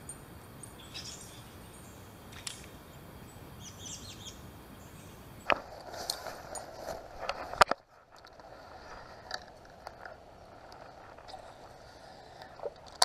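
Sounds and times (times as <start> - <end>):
faint bird chirps: 0.0 - 5.5
fishing gear rustling and knocking: 5.4 - 13.0.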